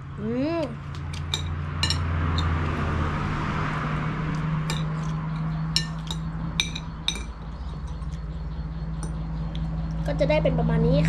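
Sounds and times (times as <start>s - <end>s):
spoon clinking against a plate: 1.1s - 2.6s, 4.6s - 8.2s.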